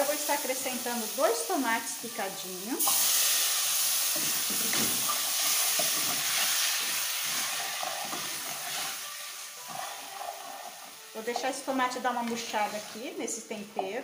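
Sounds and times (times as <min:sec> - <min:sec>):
tomatoes sizzling in hot oil: 0:00.0 - 0:14.0
spatula scraping a pan: 0:05.1 - 0:09.0, 0:09.6 - 0:11.5, 0:12.3 - 0:13.2.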